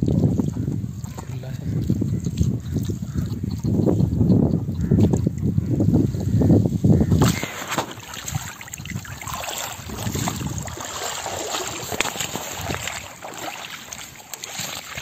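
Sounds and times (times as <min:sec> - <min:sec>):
feet splashing through water: 0:00.0 - 0:03.8, 0:07.1 - 0:15.0
water splashing and sloshing: 0:00.0 - 0:15.0
water streaming off net: 0:07.2 - 0:15.0.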